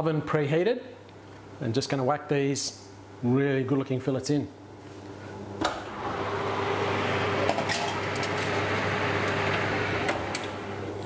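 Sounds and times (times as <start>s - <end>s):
oven fan running: 4.8s - 11.0s
oven door shutting: 5.6s - 10.8s.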